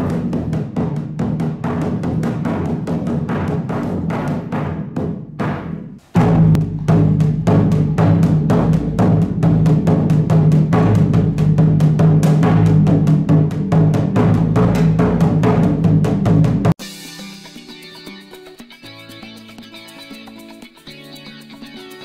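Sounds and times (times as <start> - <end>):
taiko drum beaten with sticks: 0.0 - 16.8.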